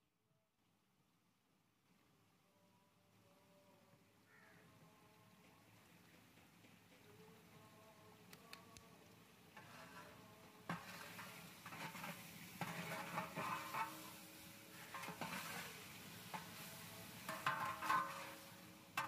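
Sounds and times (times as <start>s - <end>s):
gravy sizzling and sloshing: 9.2s - 19.0s
metal ladle scraping a pot: 9.6s - 19.0s.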